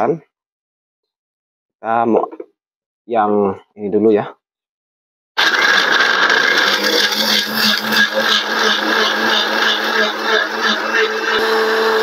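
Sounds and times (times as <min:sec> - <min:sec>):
blender running: 0:05.4 - 0:12.0.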